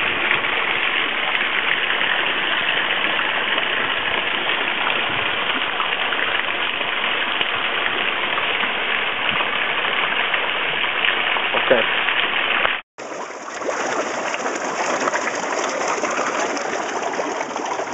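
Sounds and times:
slurry rushing from a pipe: 0:13.0 - 0:17.9.

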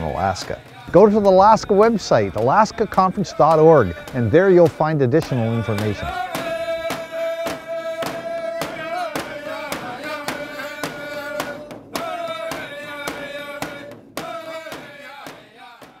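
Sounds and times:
frame drum steady beat: 0:00.0 - 0:16.0
voices chanting held note: 0:00.0 - 0:16.0.

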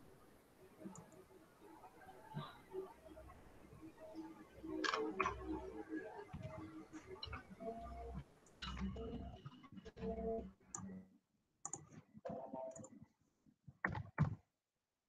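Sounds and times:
computer mouse clicking: 0:11.6 - 0:12.0.

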